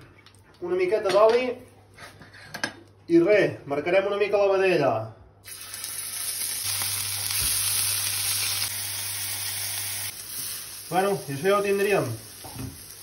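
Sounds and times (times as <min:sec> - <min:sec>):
meat sizzling on a hot griddle: 0:05.5 - 0:13.0.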